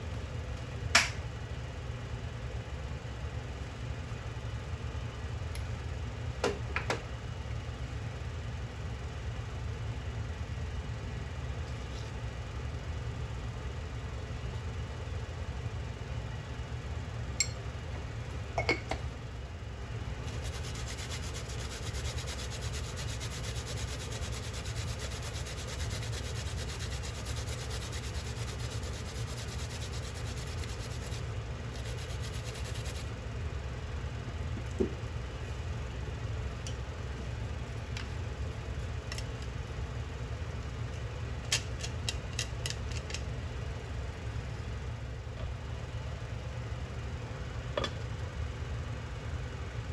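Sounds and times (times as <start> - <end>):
steady low hum: 0.0 - 49.9
ginger rasping on metal grater: 20.3 - 31.2, 31.8 - 33.0.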